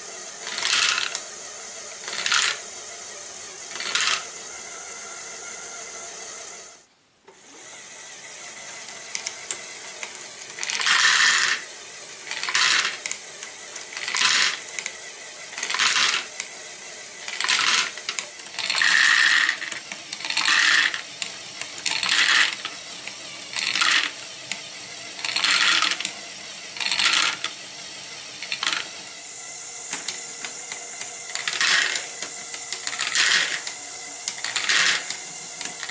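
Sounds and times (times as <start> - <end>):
small motor whirring: 0.0 - 35.9
plastic balls tumbling in drum: 12.3 - 13.2, 13.8 - 14.7, 21.6 - 22.8, 23.5 - 24.2, 28.4 - 28.9, 29.9 - 35.9.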